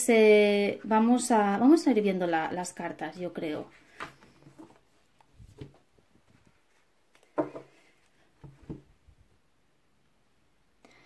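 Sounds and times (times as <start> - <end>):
faint knocks and rustles: 3.7 - 9.2.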